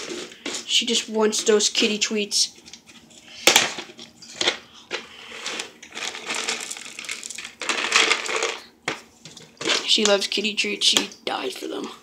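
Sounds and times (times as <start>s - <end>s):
treats spilling onto tile floor: 4.9s - 8.7s.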